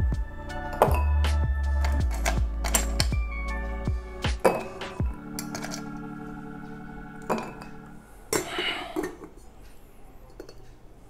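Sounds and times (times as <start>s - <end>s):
ice and tongs clinking in metal bucket: 1.8s - 3.2s, 5.4s - 6.0s
ice rattling: 1.8s - 3.2s, 5.4s - 6.0s.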